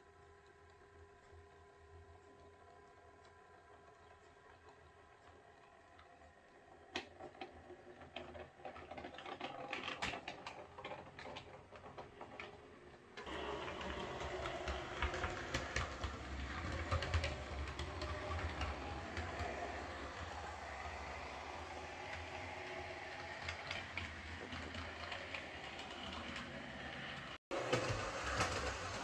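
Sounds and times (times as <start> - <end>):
model train wheels clicking on rails: 5.2 - 29.0
model train motor whirring: 13.2 - 29.0.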